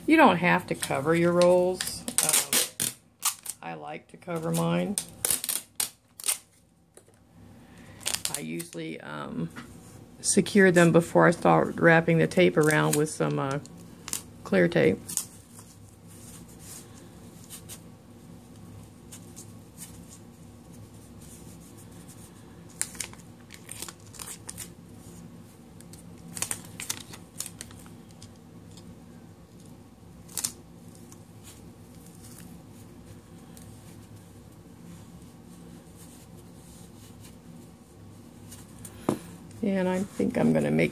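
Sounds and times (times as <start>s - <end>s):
steady low hum: 0.0s - 40.9s
tape tearing and snapping: 1.8s - 3.6s, 4.4s - 6.6s, 25.8s - 27.8s, 30.3s - 31.1s.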